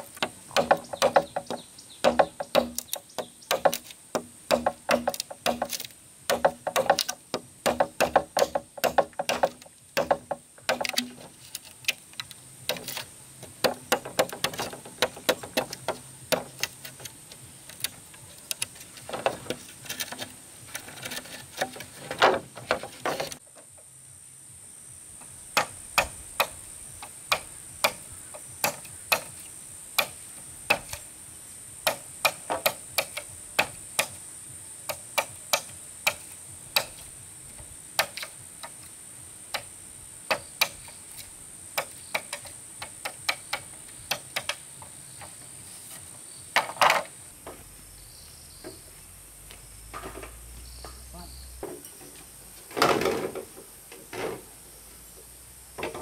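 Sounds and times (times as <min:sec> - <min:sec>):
hand tool striking wood: 0:00.0 - 0:12.0, 0:12.7 - 0:23.4, 0:27.3 - 0:28.0, 0:28.6 - 0:29.4, 0:30.0 - 0:31.0, 0:31.8 - 0:34.2, 0:34.9 - 0:37.0.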